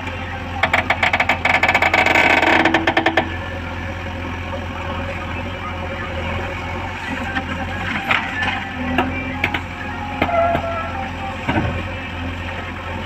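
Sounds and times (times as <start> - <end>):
diesel engine under load: 0.0 - 13.0
rapid rattling: 0.6 - 3.4.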